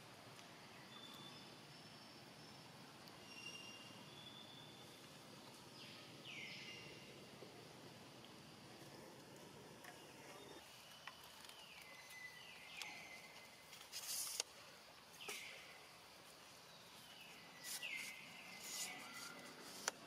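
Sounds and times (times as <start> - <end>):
short hissy bursts: 13.9 - 14.5.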